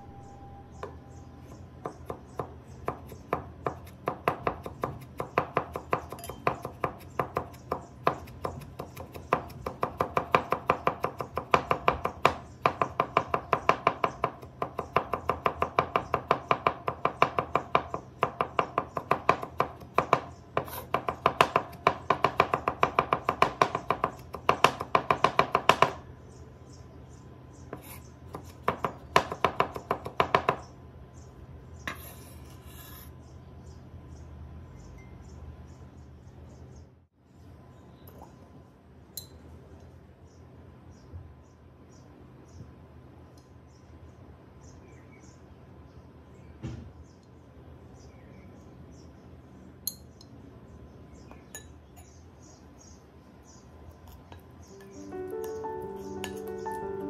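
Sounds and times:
cleaver chopping on wooden board: 0:01.9 - 0:26.0, 0:28.3 - 0:30.6.

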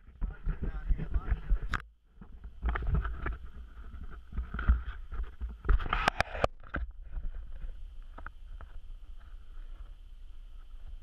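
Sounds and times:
steady low rumble: 0:00.0 - 0:02.6.

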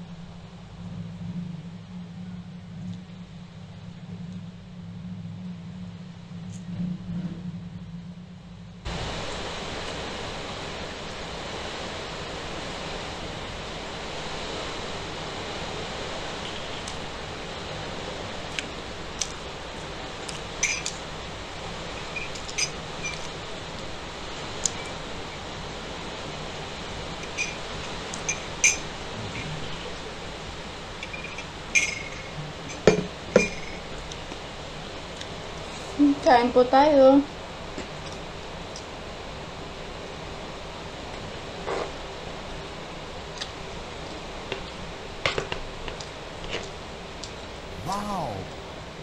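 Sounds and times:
heavy rain hissing: 0:08.9 - 0:31.8, 0:47.5 - 0:49.0
glass set down knock: 0:32.9 - 0:33.6.

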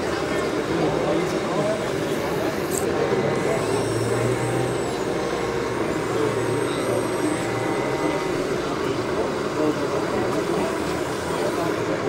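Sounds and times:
model truck motor drone: 0:00.0 - 0:12.0.

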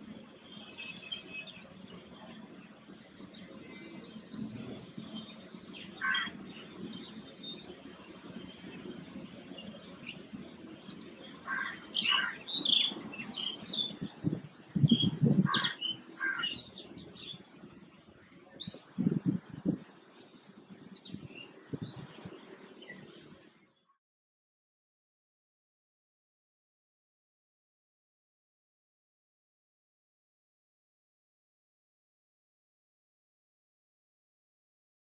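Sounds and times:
songbirds chirping: 0:00.0 - 0:23.9
low muffled bursts: 0:16.8 - 0:23.6.

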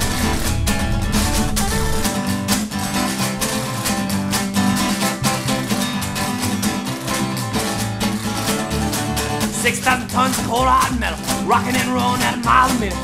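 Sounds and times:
strummed acoustic guitar: 0:00.0 - 0:13.0.

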